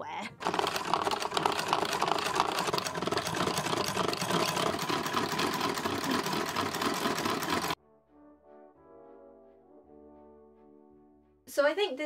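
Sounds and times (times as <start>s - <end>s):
sewing machine clattering: 0.4s - 7.8s.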